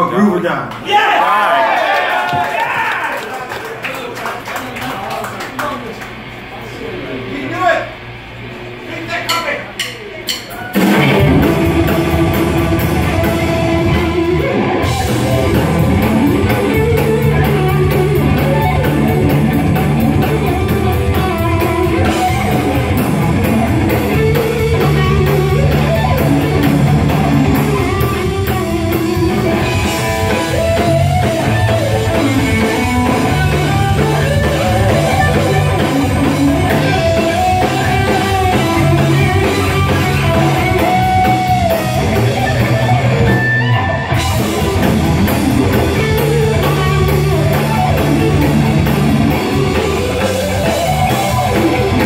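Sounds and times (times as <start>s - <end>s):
drum kit cymbal beat: 9.2s - 52.0s
bass guitar notes: 10.6s - 52.0s
electric guitar melody: 10.8s - 52.0s.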